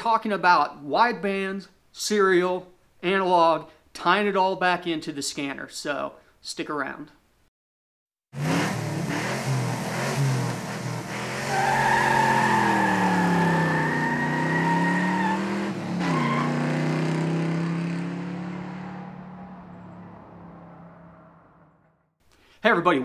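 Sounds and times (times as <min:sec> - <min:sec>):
car engine revving: 0:08.4 - 0:21.8.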